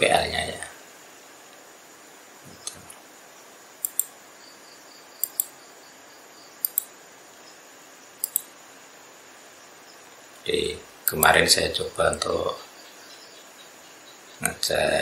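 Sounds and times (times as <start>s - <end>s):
computer mouse clicking: 3.8s - 4.1s, 5.2s - 5.5s, 6.6s - 6.9s, 8.2s - 8.5s.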